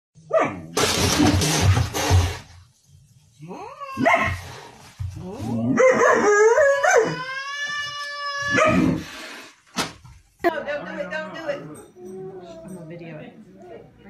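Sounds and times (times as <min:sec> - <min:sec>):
husky yelping and howling: 0:05.6 - 0:09.0.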